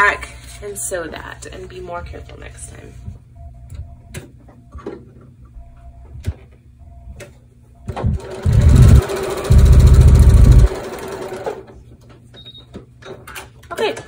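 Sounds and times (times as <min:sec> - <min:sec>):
sewing machine stitching: 0:07.9 - 0:11.7.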